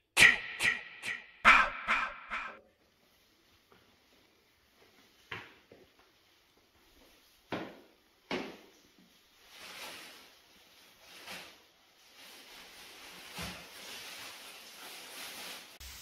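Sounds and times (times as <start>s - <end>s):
sharp knocks: 0.2s - 2.6s.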